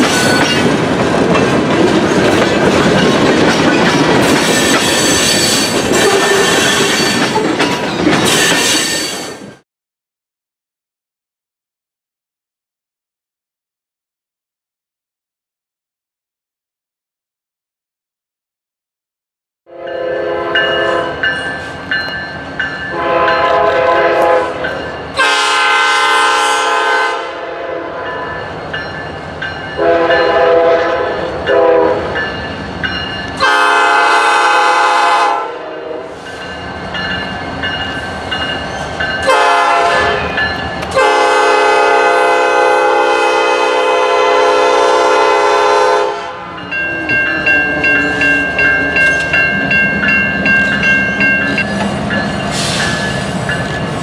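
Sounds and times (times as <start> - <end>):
train wheels clickety-clack: 0.0 - 9.6, 47.1 - 54.0
locomotive air horn blasts: 19.7 - 21.2, 22.9 - 28.3, 29.8 - 32.1, 33.4 - 36.2, 39.2 - 40.3, 40.9 - 46.6.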